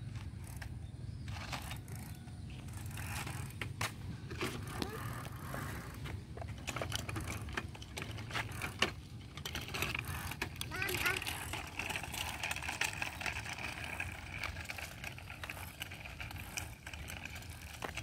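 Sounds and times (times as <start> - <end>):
bicycle rumble on a path: 0.0 - 18.0
bike clicks and rattles: 0.0 - 18.0.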